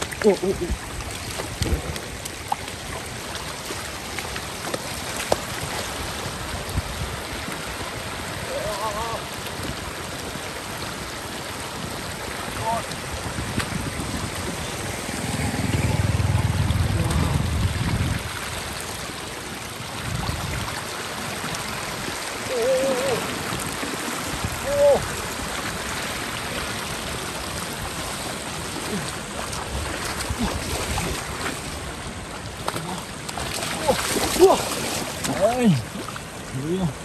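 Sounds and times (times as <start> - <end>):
floodwater flowing and trickling: 0.0 - 37.0
low rumble: 14.0 - 18.3.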